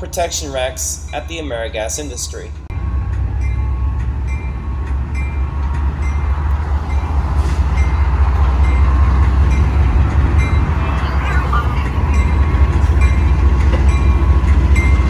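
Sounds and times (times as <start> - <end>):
crossing bell dinging: 0.0 - 15.0
diesel locomotive engine drone: 0.0 - 15.0.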